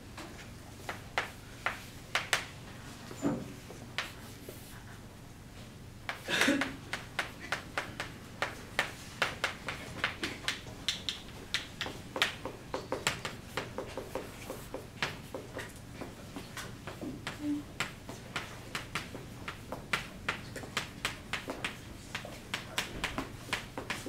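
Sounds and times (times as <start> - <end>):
chalk writing on a chalkboard: 3.6 - 5.0, 11.8 - 24.0.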